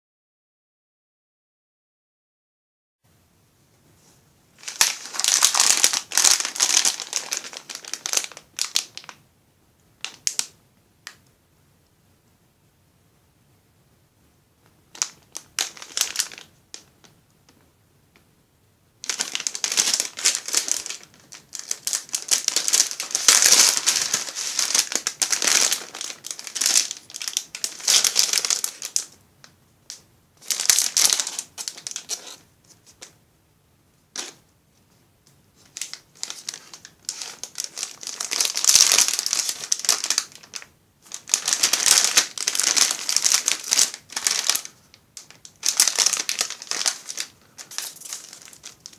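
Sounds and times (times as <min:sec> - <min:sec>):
foil bag crinkling: 0:04.6 - 0:09.2, 0:14.9 - 0:16.9, 0:19.0 - 0:29.2, 0:30.4 - 0:32.4, 0:35.6 - 0:48.9.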